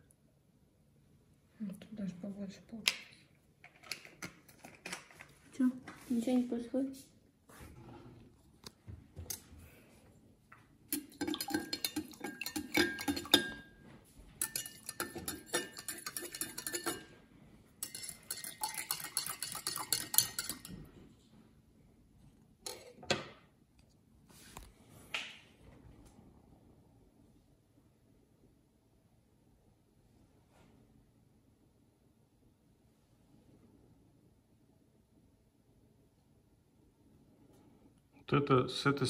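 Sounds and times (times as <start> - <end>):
spoon clinking against cups: 10.9 - 13.8, 14.4 - 17.1, 17.8 - 20.9.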